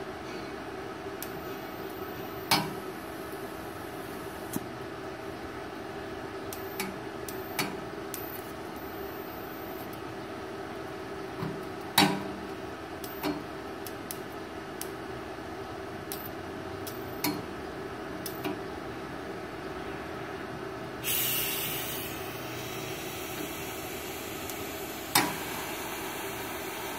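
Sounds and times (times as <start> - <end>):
welding machine humming: 6.5 - 10.0, 21.0 - 26.9.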